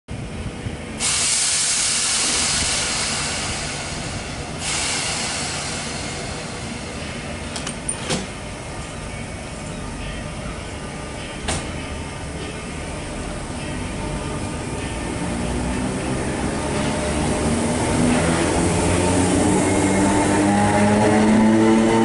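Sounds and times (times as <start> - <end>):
train rumbling: 0.1 - 22.0
compressed air hiss: 1.0 - 7.5.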